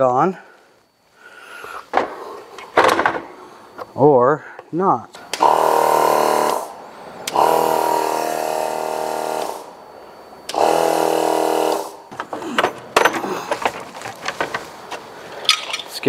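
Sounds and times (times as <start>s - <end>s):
air compressor motor buzzing: 5.2s - 13.5s
clicks and knocks of parts handled: 12.2s - 16.0s.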